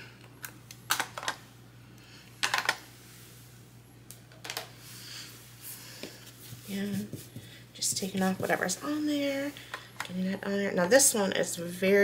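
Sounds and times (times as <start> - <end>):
plastic cases clicking and knocking: 2.4 - 2.8.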